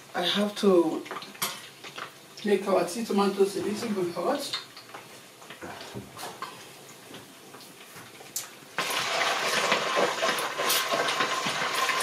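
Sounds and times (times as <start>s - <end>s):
tomato paste sizzling in oil: 8.8s - 12.0s.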